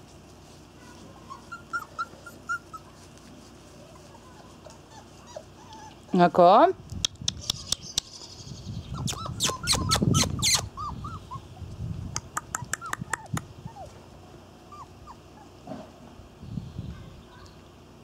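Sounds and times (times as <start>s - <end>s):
puppy whimpering: 1.2s - 6.4s, 8.9s - 11.6s, 12.4s - 14.0s, 14.7s - 15.6s.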